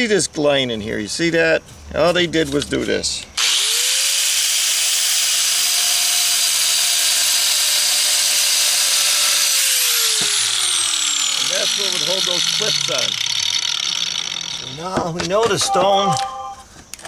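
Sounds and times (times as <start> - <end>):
angle grinder cutting stone: 3.4 - 16.2.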